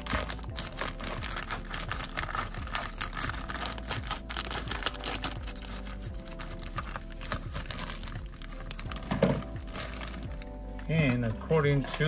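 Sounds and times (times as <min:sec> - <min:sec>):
plastic packaging crinkling: 0:00.0 - 0:10.6.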